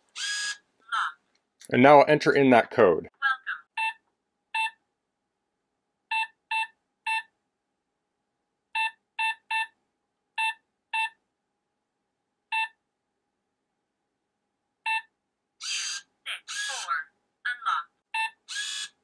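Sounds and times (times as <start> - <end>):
keypad beeps: 4.6 - 4.8, 12.5 - 12.8, 14.9 - 15.1.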